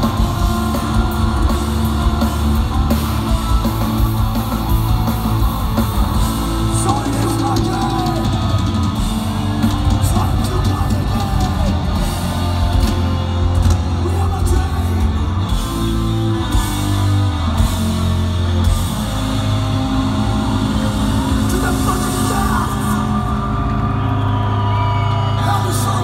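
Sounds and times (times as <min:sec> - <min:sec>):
vocals: 0:00.0 - 0:04.6, 0:06.5 - 0:15.4, 0:21.2 - 0:24.0, 0:25.1 - 0:26.0
heavy drums and cymbals: 0:00.0 - 0:23.5
distorted electric guitars: 0:00.0 - 0:26.0.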